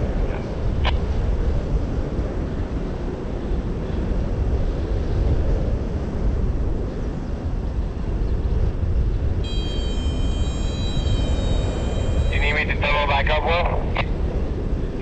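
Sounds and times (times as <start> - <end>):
wind buffeting microphone: 0.0 - 15.0
thin high-pitched tone: 9.4 - 12.7.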